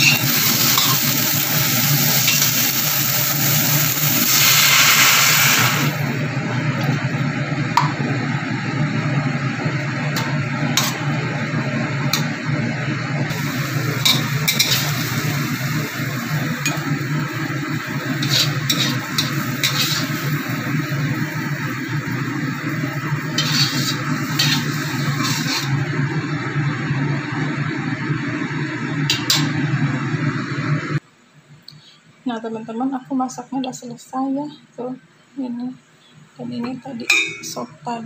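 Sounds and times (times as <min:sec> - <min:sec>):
liquid sizzling in hot wok: 0:00.0 - 0:06.3, 0:13.3 - 0:30.1
steady low hum: 0:05.9 - 0:38.0
metal spatula scraping wok: 0:14.0 - 0:15.2, 0:18.0 - 0:20.6, 0:22.8 - 0:25.8.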